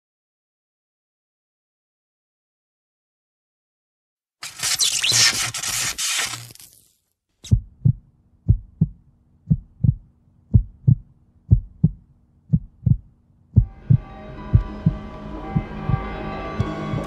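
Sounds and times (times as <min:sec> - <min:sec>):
heartbeat thumps: 0:07.4 - 0:15.0, 0:15.6 - 0:17.0
sustained music chords: 0:13.6 - 0:17.0.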